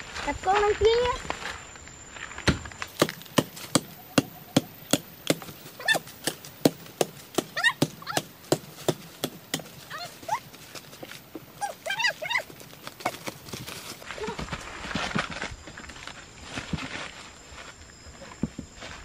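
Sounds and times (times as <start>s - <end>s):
high chirping calls: 3.6s - 8.4s.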